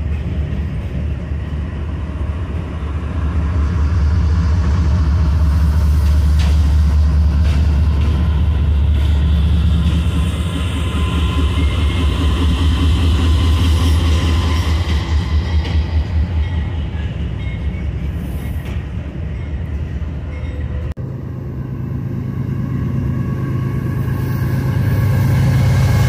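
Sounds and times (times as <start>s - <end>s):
diesel locomotive engine rumble: 0.0s - 26.0s
moving train noise: 0.0s - 26.0s.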